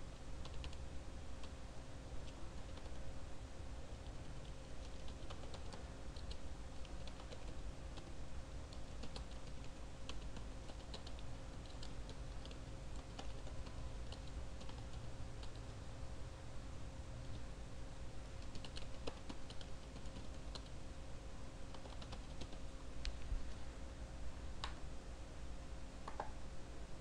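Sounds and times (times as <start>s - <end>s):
low steady hum: 0.0s - 27.0s
computer keyboard typing: 0.4s - 0.8s, 2.2s - 3.0s, 4.0s - 8.1s, 8.7s - 15.7s, 18.4s - 20.8s, 21.7s - 22.6s.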